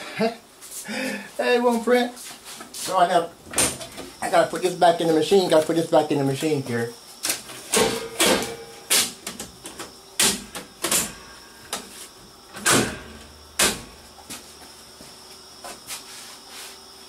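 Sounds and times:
sharp knocks and clunks: 7.7 - 8.6.

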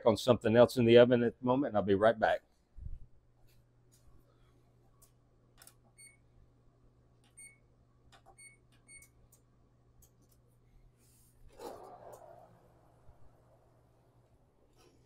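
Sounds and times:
faint low hum: 0.0 - 15.0
oven control panel beeps: 5.9 - 6.3, 7.3 - 9.2.

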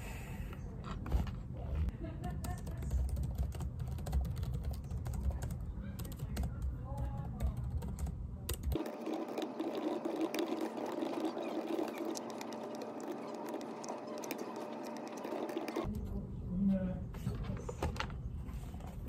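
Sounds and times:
steady mid-pitched hum: 7.8 - 16.6.

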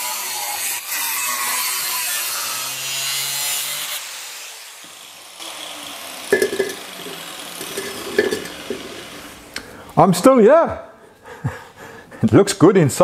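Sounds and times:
angle grinder cutting steel: 0.0 - 9.7
grinder spinning down: 4.8 - 9.5
ringing metallic clank: 6.3 - 9.0.

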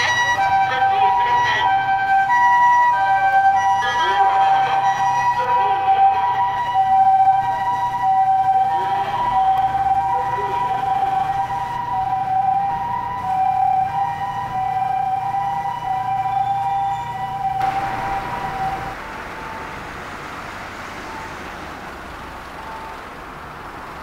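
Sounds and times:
two-tone ambulance siren: 0.0 - 23.6
low vehicle rumble: 5.1 - 24.0.

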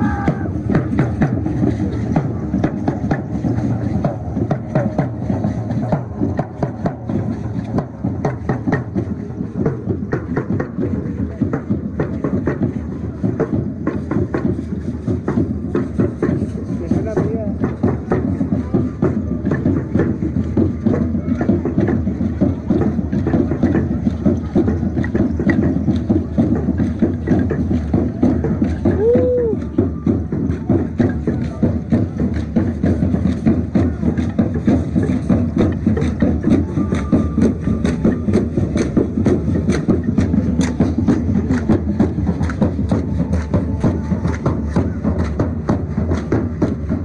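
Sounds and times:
marching drums beating fast: 0.0 - 47.0.

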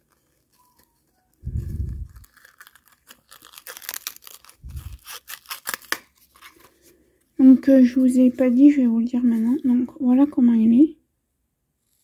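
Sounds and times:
fabric pouch rustling and crinkling: 0.0 - 7.0.

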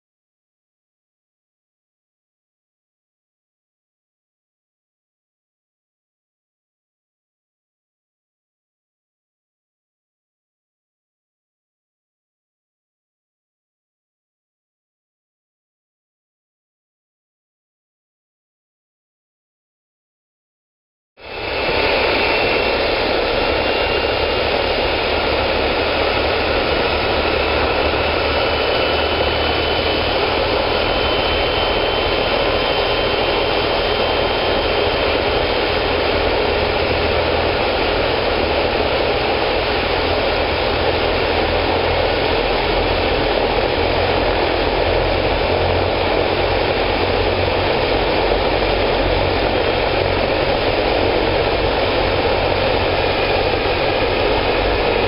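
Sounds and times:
helicopter turbine whine and rotor: 21.2 - 55.0.

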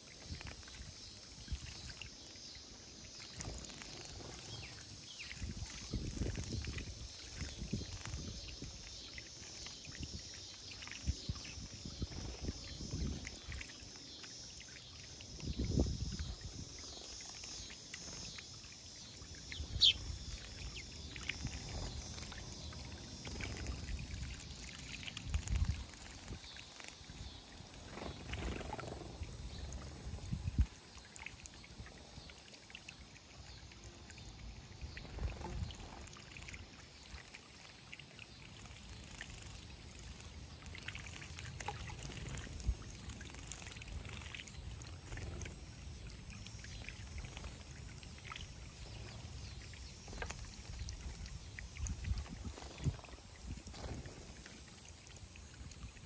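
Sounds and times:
high bird chirp: 19.4 - 21.2.

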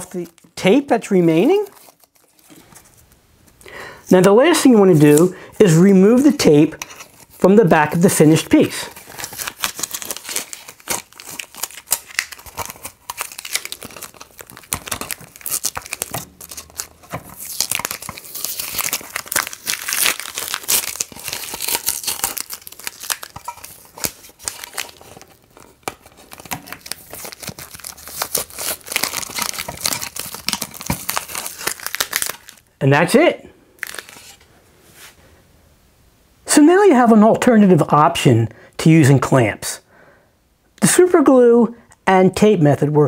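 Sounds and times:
tape peeling and crinkling: 1.4 - 3.6, 6.1 - 7.5, 8.6 - 32.7, 33.8 - 34.5.

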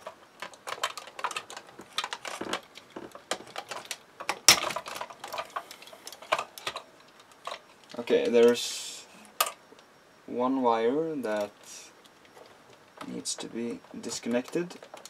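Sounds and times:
plastic parts clicking: 0.0 - 8.6, 9.3 - 9.6, 11.3 - 15.0.

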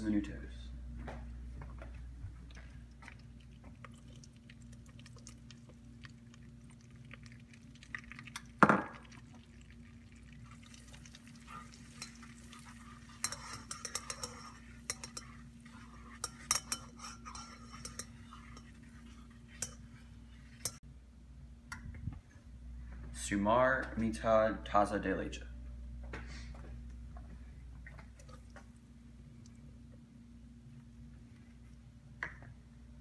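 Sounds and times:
low steady hum: 0.0 - 33.0
whisk scraping and clinking in saucepan: 10.5 - 20.8.

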